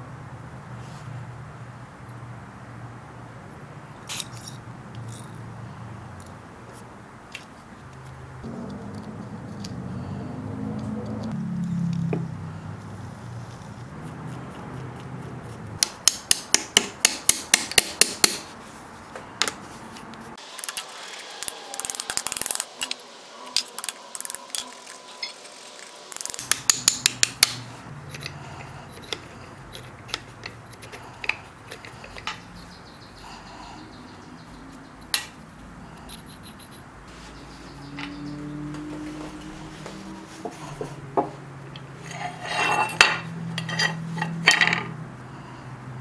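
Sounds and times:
hissy scraping: 19.6 - 33.4
loose metal parts clicking: 23.6 - 25.4, 26.1 - 32.6.

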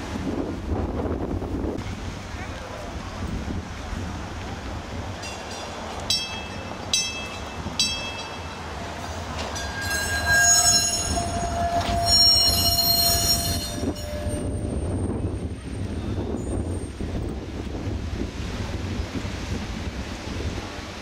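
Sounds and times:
streetcar wheels squealing on rails: 5.1 - 17.4.

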